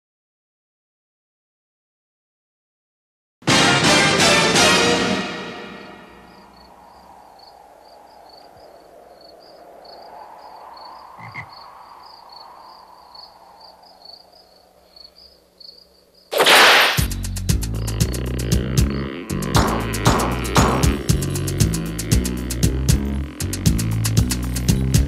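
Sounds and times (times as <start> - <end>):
rhythmic music: 3.5 - 6.0, 17.1 - 25.0
low swell of noise: 4.9 - 15.6
loud crash-like hit: 16.3 - 17.2.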